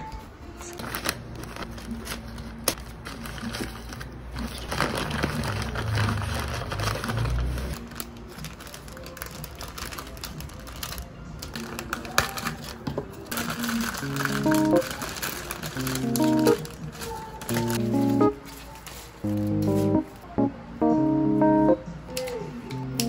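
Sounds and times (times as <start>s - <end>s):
background music: 6.0s - 23.0s.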